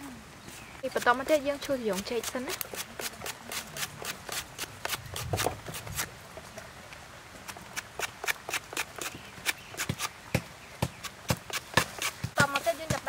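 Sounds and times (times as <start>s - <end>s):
knife slicing lemongrass: 1.9s - 6.1s, 11.0s - 13.0s.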